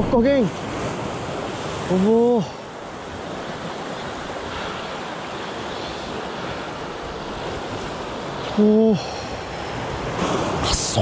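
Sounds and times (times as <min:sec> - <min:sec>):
sea surf rushing: 0:00.0 - 0:11.0
wind: 0:00.0 - 0:11.0.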